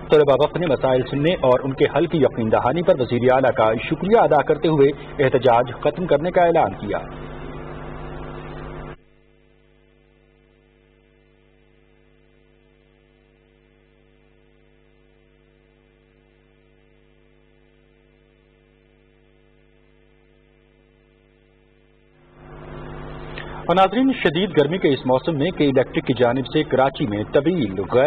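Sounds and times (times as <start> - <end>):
loud noisy background: 0.0 - 9.0, 22.2 - 28.0
faint mains hum: 0.0 - 28.0.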